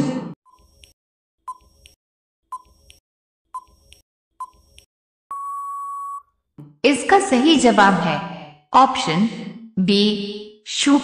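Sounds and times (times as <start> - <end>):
long steady beep: 5.3 - 6.3.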